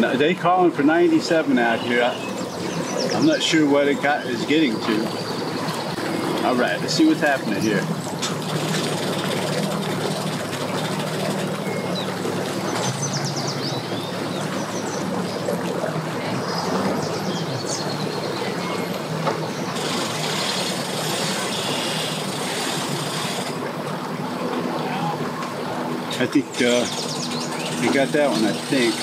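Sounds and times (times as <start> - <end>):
outboard motor running: 0.0 - 29.0
propeller churning water: 0.0 - 29.0.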